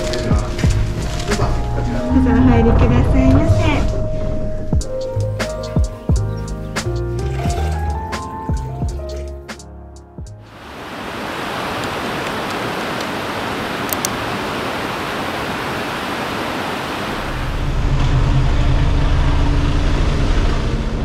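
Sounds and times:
bus engine rumble: 0.0s - 5.6s, 17.0s - 21.0s
stream flowing over pebbles: 10.4s - 17.6s.

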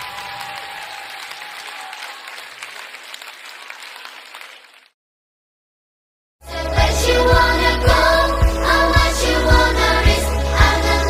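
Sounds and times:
applause: 0.0s - 5.0s.

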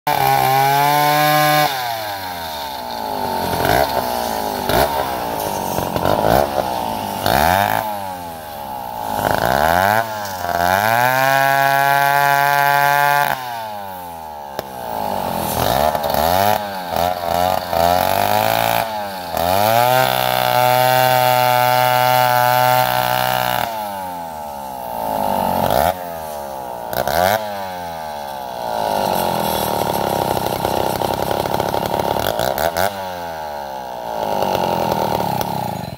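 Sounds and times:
chainsaw revving: 0.1s - 35.9s.

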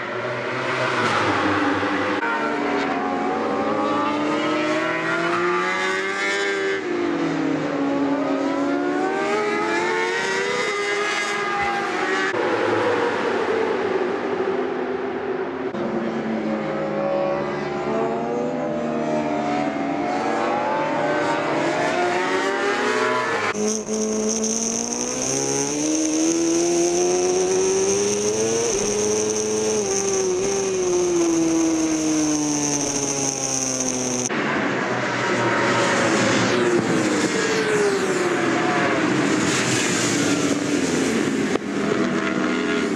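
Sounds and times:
motorcycle engines revving: 0.0s - 14.3s, 15.7s - 42.9s
high whine: 23.5s - 34.4s.

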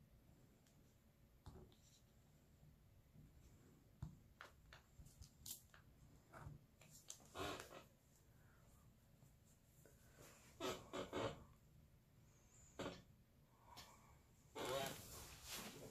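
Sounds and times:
scrape: 15.0s - 15.9s.

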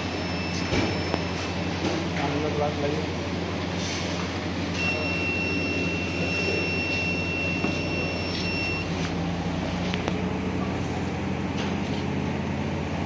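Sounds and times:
high-pitched tone: 4.8s - 9.0s.

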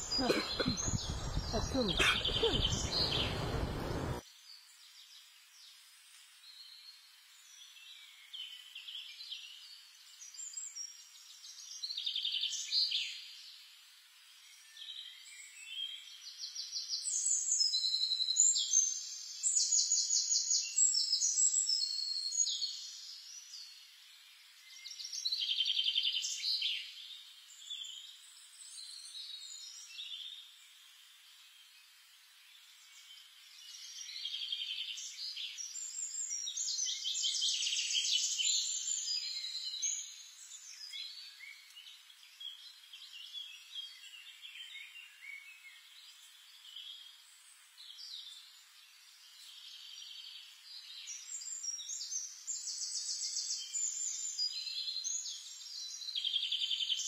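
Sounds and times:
low rough noise: 0.0s - 4.2s
robin singing: 0.0s - 4.2s.

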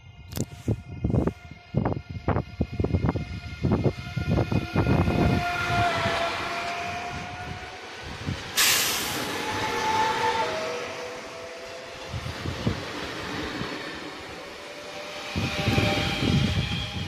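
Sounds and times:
train whine: 0.0s - 17.0s
sharp hiss of air: 8.6s - 9.4s.

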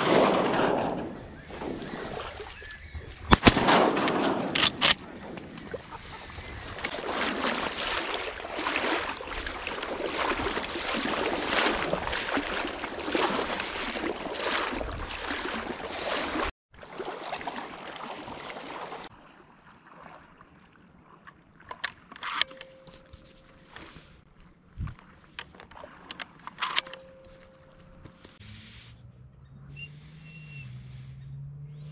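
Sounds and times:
quiet water noise: 0.0s - 3.6s, 4.8s - 28.4s
water splashing: 0.0s - 28.2s.

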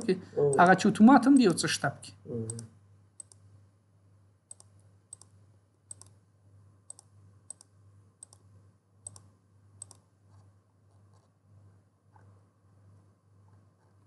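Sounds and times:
faint low hum: 0.0s - 14.0s
computer mouse clicking: 2.5s - 3.4s, 4.5s - 6.2s, 6.9s - 11.3s.

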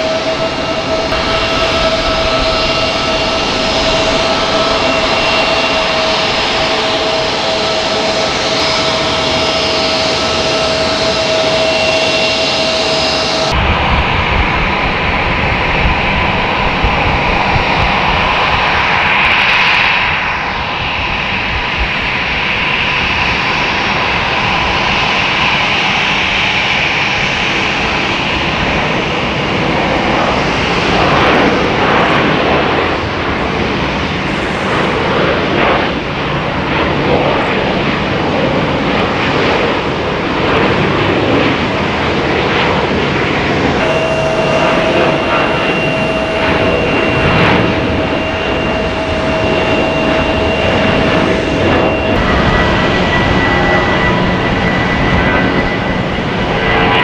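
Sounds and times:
jet engines roaring with high whine: 0.0s - 57.0s.

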